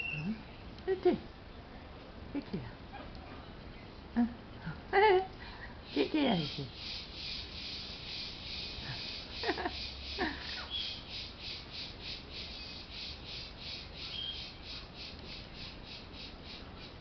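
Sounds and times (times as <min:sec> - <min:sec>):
insects pulsing chorus: 0:05.9 - 0:17.0.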